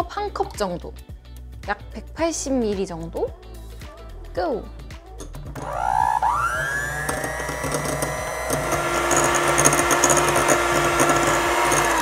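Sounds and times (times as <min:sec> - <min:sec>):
electric hand mixer whine: 0:05.6 - 0:12.0.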